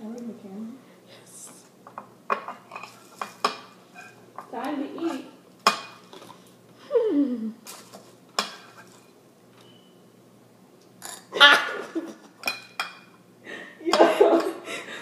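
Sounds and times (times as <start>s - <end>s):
spoon clinking on ceramic bowl: 12.4s - 13.2s.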